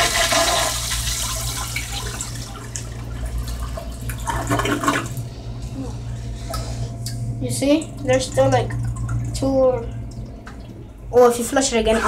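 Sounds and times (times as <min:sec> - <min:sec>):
cistern refilling: 0:00.0 - 0:05.3, 0:07.8 - 0:10.9
toilet flushing: 0:00.0 - 0:05.3, 0:07.8 - 0:12.0
steady whine: 0:04.0 - 0:12.0.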